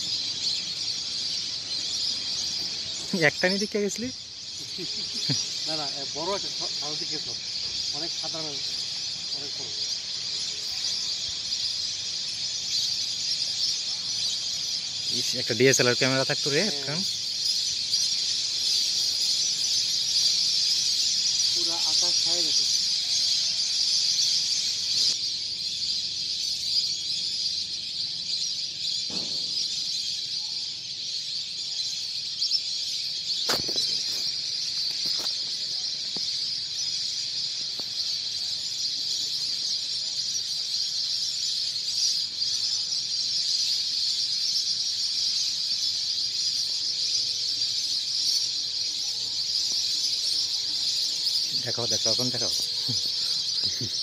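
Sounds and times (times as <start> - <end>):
flock of birds calling: 0.0 - 54.0.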